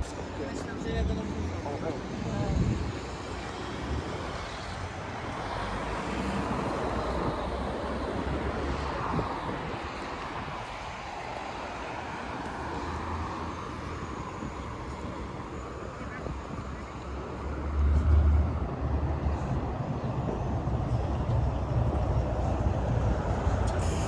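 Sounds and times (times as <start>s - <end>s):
road traffic: 0.0s - 24.0s.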